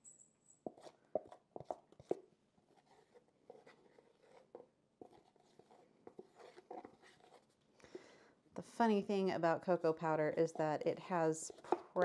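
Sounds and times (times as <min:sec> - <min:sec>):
powder scraping and rustling: 0:00.6 - 0:07.7.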